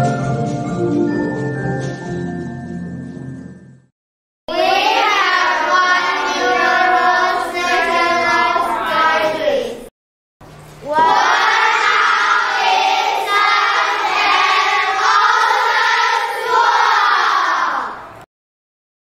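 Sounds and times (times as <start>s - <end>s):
children singing in unison: 4.5s - 9.6s, 10.8s - 18.2s.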